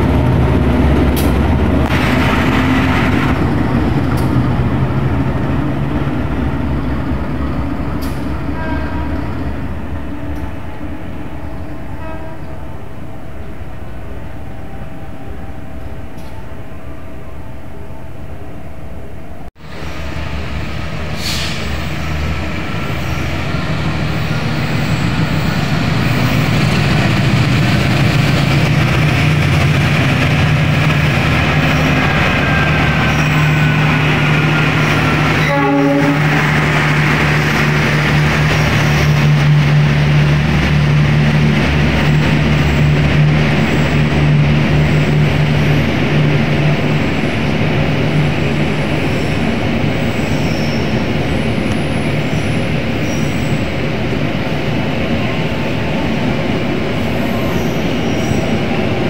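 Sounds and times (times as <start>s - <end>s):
locomotive engine humming: 0.0s - 59.0s
train wheels rumbling on rails: 0.0s - 59.0s.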